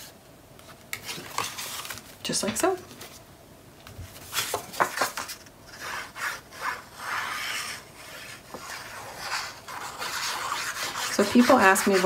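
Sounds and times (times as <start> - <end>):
glue nozzle rubbing on paper: 6.2 - 12.0.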